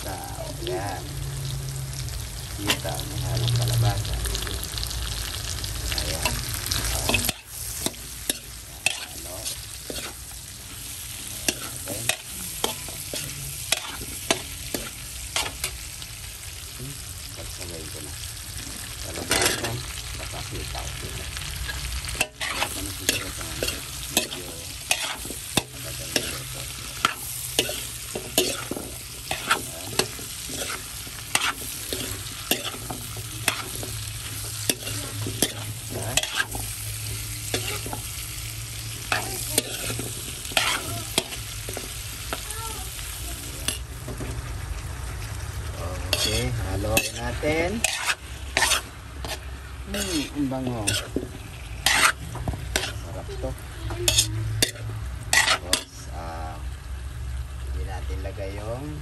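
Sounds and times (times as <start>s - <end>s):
food sizzling in a wok: 0.0s - 59.0s
metal utensil scraping a pan: 6.0s - 15.8s, 19.1s - 20.0s, 21.7s - 38.2s, 38.9s - 42.0s, 46.0s - 53.1s, 54.0s - 56.0s.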